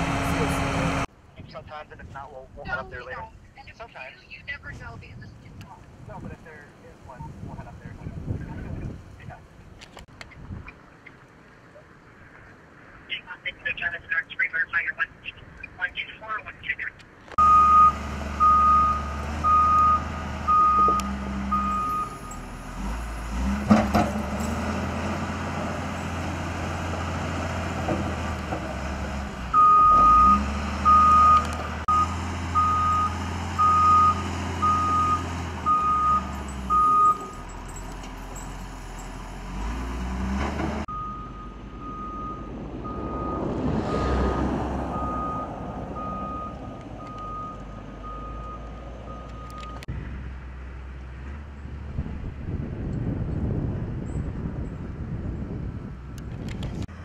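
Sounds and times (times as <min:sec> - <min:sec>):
diesel engine running: 0:00.0 - 0:01.1, 0:17.4 - 0:52.6
vehicle reversing alarm beeping: 0:17.4 - 0:23.5, 0:29.5 - 0:39.8, 0:40.9 - 0:43.5, 0:44.9 - 0:49.9.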